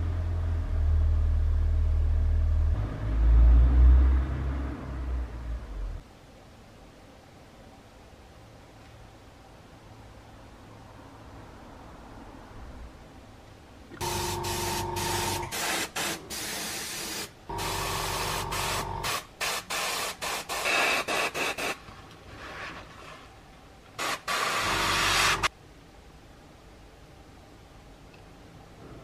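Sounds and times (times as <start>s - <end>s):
airbrush spraying hissing air: 14.0s - 21.8s, 24.0s - 25.5s.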